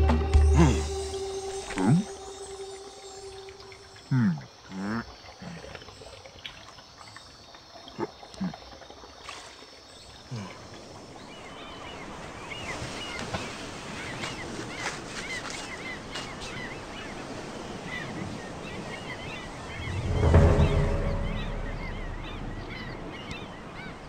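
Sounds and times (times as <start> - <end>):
faint chirps: 0.0 - 5.6
water ambience: 0.0 - 24.0
falling pitched glides: 19.7 - 23.5.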